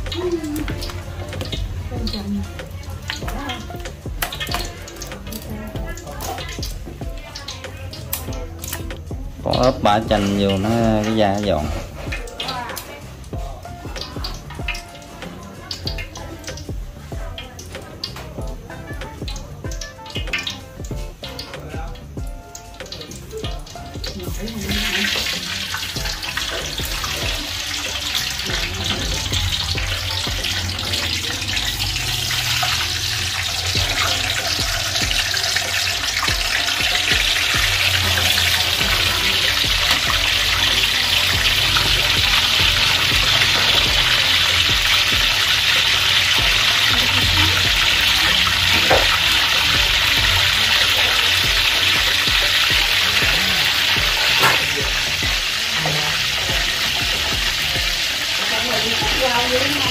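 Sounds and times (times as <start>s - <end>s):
hot oil sizzling: 0.0s - 59.9s.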